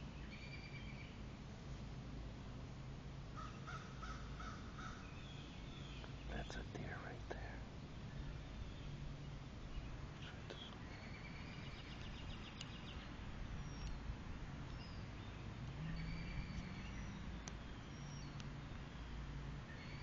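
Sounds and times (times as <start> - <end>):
background hiss: 0.0 - 20.0
faint low hum: 0.0 - 20.0
bird calls: 3.4 - 7.1, 8.1 - 14.1, 14.7 - 20.0
bird chirping trill: 8.1 - 14.1, 14.7 - 20.0.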